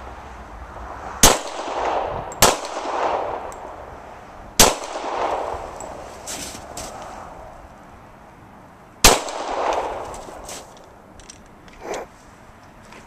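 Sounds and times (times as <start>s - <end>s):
pistol shots with echo: 1.2s - 3.7s, 4.6s - 5.6s, 9.0s - 10.1s.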